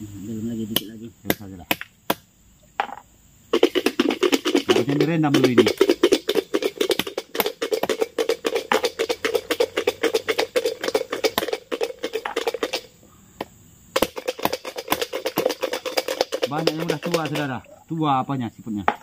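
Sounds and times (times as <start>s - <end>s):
snail shells clattering: 3.6s - 12.9s.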